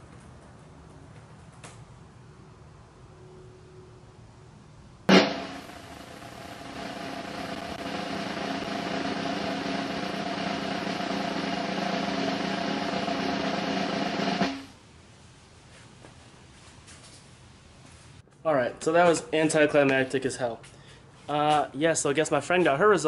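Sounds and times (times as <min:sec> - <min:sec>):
snare drum roll: 0:05.1 - 0:14.7.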